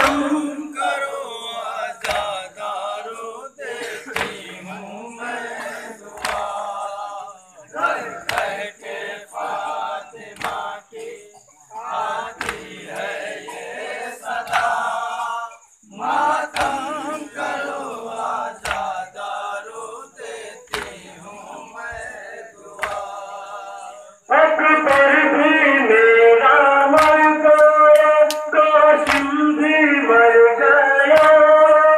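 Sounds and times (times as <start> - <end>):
men chanting a lament: 0.0 - 31.9
chest-beating slaps: 3.8 - 4.5, 6.1 - 6.6, 8.2 - 8.6, 16.5 - 16.8, 18.6 - 19.0, 20.7 - 21.0, 22.8 - 23.2, 27.0 - 29.3.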